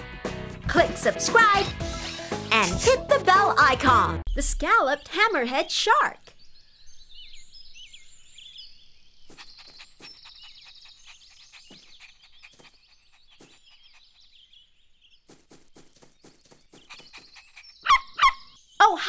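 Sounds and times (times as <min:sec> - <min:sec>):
birds chirping and trilling: 0:04.3 - 0:19.0.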